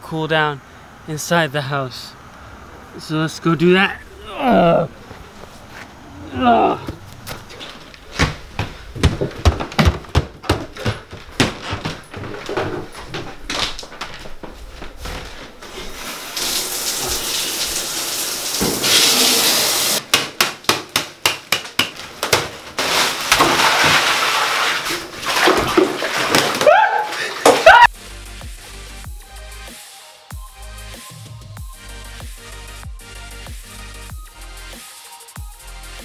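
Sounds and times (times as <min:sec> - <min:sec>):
footsteps on wooden stairs: 0:06.8 - 0:16.0
quick knocks and thumps: 0:06.9 - 0:14.5
water running into bathtub: 0:15.7 - 0:20.0, 0:22.8 - 0:27.9.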